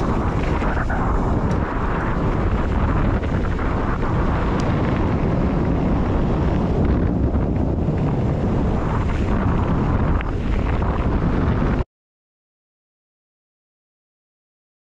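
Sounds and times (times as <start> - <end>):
bike rumbling over rough trail: 0.0 - 11.8
wind rushing over microphone: 0.0 - 11.9.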